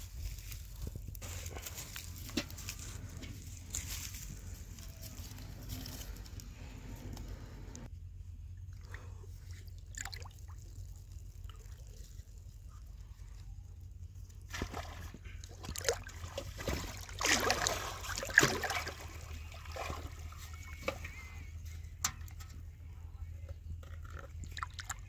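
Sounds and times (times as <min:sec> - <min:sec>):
steady low hum: 0:00.0 - 0:25.0
water sloshing and splashing: 0:08.8 - 0:11.8, 0:14.4 - 0:21.3, 0:24.0 - 0:25.0.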